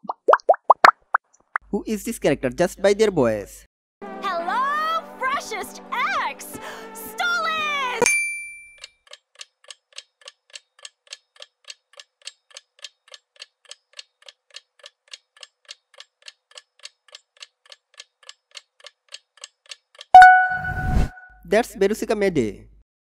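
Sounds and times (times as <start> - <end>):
clock ticking: 9.1 - 20.5.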